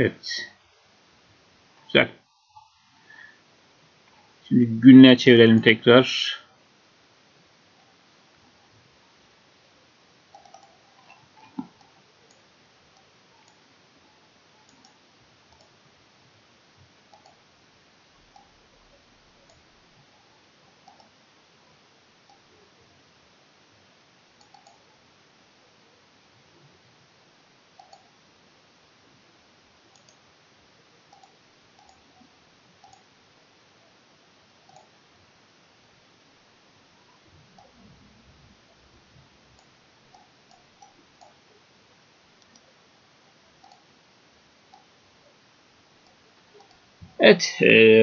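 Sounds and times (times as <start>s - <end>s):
faint steady hiss: 0.0s - 48.0s
computer mouse clicks: 10.3s - 13.6s, 14.6s - 15.8s, 17.1s - 17.4s, 18.3s - 18.5s, 20.8s - 21.2s, 24.4s - 24.9s, 27.8s - 28.2s, 29.9s - 30.2s, 31.1s - 32.2s, 32.8s - 33.1s, 34.7s - 35.0s, 39.6s - 41.4s, 42.4s - 42.7s, 43.6s - 43.9s, 44.7s - 44.9s, 46.0s - 46.8s.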